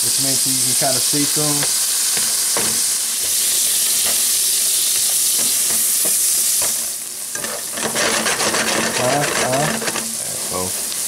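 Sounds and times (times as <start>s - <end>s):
onion sizzling in frying pan: 0.0s - 11.0s
spatula scraping pan: 5.0s - 11.0s.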